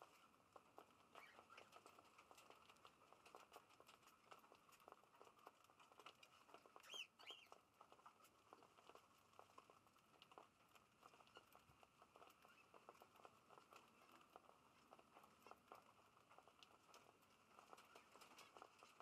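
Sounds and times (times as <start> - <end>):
birds pecking seed clicks: 0.0 - 19.0
bird chirps: 6.8 - 7.6.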